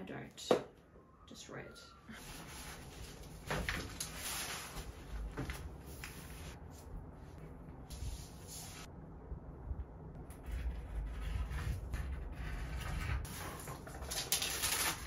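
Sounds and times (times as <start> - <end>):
paper rustling and crinkling: 2.2 - 6.6, 12.9 - 15.0.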